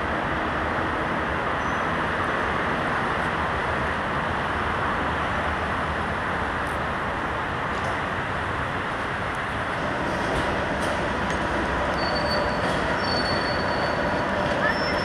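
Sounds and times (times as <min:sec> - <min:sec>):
steady vehicle traffic rush: 0:00.0 - 0:15.0.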